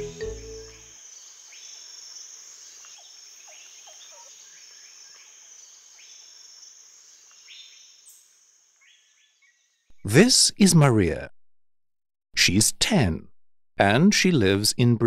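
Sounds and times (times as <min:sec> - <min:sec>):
high insect drone: 0:00.0 - 0:08.8.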